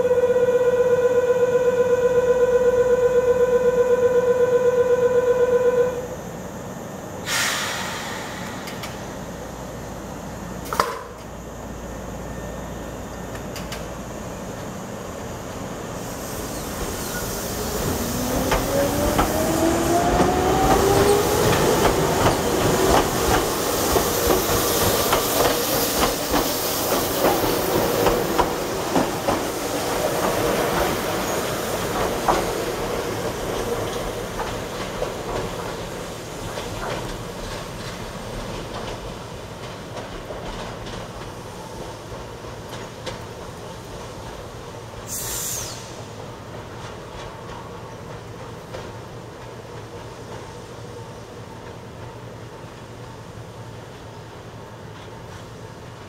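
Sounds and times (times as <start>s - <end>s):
air hiss: 7.2s - 10.3s, 15.8s - 19.4s, 45.0s - 46.2s
sharp click: 8.4s - 9.1s
electric train motor whine: 11.4s - 23.7s.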